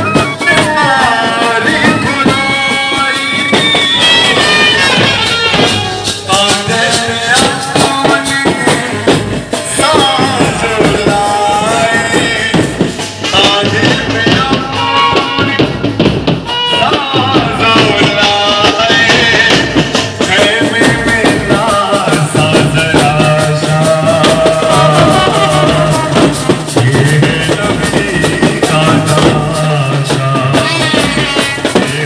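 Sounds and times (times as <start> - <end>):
trumpets playing melody: 0.0 - 8.2, 30.4 - 32.0
drums: 0.0 - 32.0
rattling percussion: 0.0 - 32.0.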